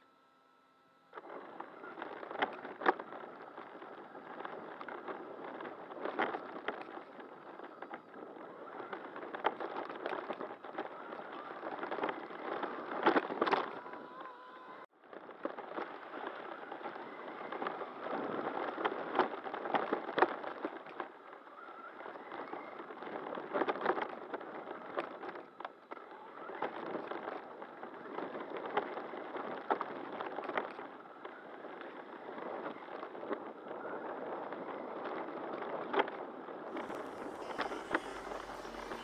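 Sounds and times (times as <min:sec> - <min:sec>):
rc truck driving hiss: 0:36.8 - 0:39.0.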